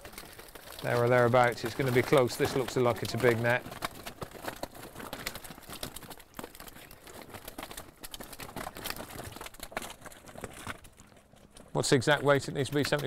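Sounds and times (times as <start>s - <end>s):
wet mesh rustling: 0.0s - 13.0s.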